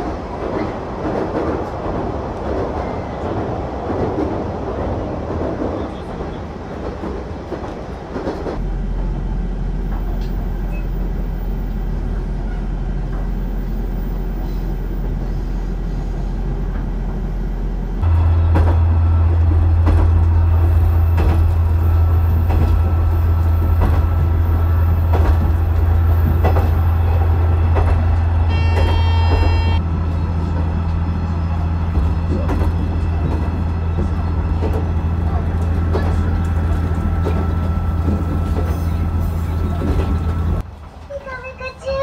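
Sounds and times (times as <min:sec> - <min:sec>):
diesel railcar engine drone: 0:07.2 - 0:42.0.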